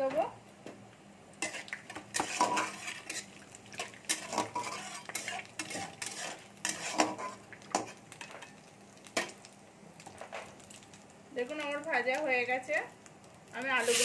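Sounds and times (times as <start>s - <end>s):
oil sizzling faintly: 0.0s - 14.0s
metal spatula scraping a pan: 1.4s - 8.5s.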